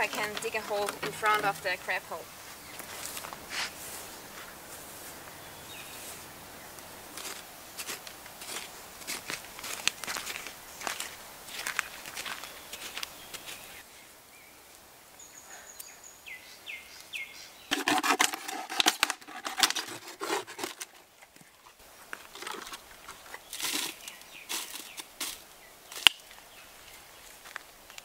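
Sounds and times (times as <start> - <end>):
scraping in sandy soil: 2.4 - 6.3, 7.1 - 13.8, 17.7 - 26.1
knife cutting plastic bottle: 17.7 - 21.0
plastic crinkling: 17.7 - 21.4, 22.2 - 25.4.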